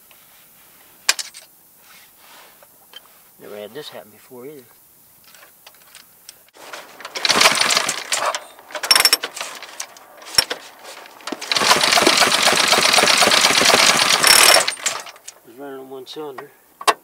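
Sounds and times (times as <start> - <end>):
motorcycle engine starting: 6.6 - 15.4.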